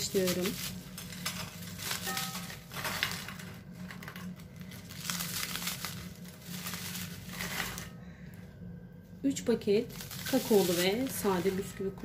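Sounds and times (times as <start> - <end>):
biscuits cracking and crumbling: 0.0 - 8.0.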